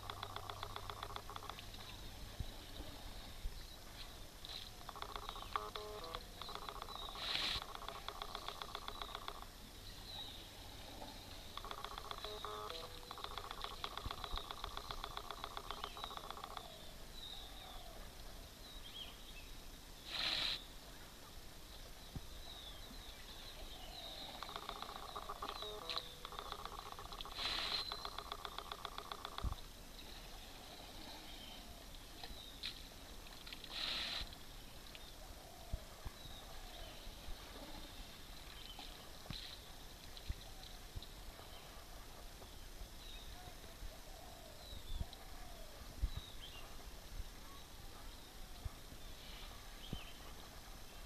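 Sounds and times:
faint bird chirps: 0:00.0 - 0:32.8
camcorder autofocus motor buzzing: 0:04.9 - 0:09.4
rushing hiss: 0:20.0 - 0:20.7, 0:33.7 - 0:34.3.

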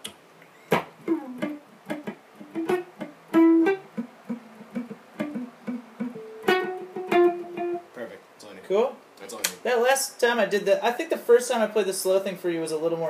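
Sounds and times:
guitar picked notes: 0:00.7 - 0:08.0.

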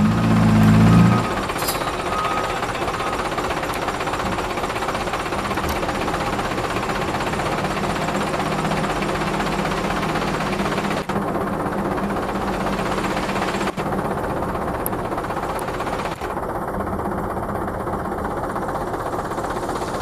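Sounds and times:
hydraulic hoist raising: 0:00.0 - 0:06.4
diesel truck engine clattering: 0:00.0 - 0:20.0.

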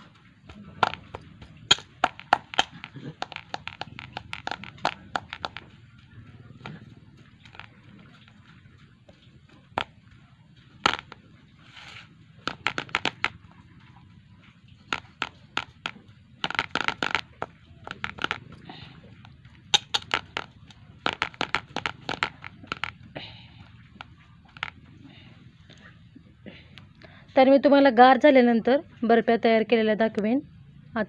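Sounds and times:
hand patting mixture in plate: 0:00.0 - 0:10.1, 0:10.8 - 0:11.3, 0:11.9 - 0:13.4, 0:14.8 - 0:24.8.

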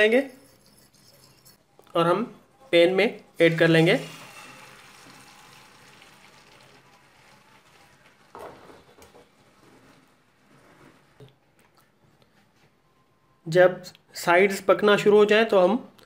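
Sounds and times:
egg sizzling in frying pan: 0:03.5 - 0:11.2.

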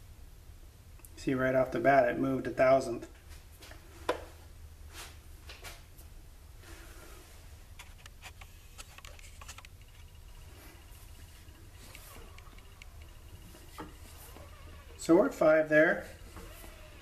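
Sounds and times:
steady low hum: 0:00.0 - 0:17.0
faint high steady tone: 0:09.6 - 0:17.0.

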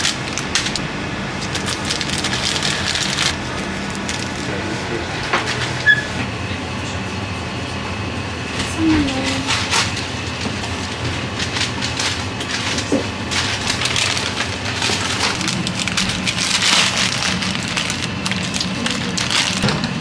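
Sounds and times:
food packaging crinkling: 0:00.0 - 0:00.8, 0:01.4 - 0:04.5, 0:11.2 - 0:20.0
plastic sachet tearing: 0:01.5 - 0:04.5, 0:11.4 - 0:20.0.

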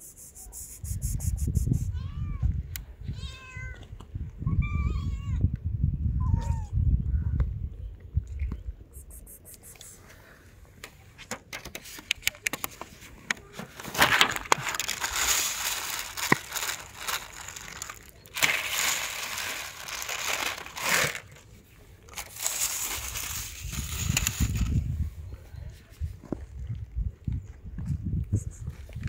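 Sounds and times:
crinkling crushing noise: 0:10.8 - 0:25.0.

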